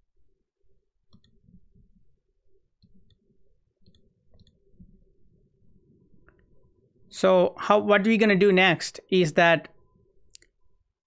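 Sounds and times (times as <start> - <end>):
low steady hum: 0.0 - 7.9
computer mouse clicks: 1.1 - 2.0, 3.8 - 5.0.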